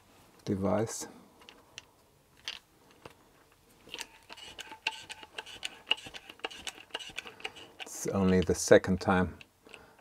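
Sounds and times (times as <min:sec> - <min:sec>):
hydraulic crimping tool clicking: 0:03.9 - 0:08.6.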